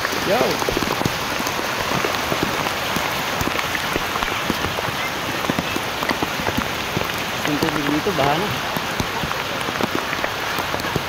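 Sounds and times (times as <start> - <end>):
heavy rain pouring: 0.0 - 11.0.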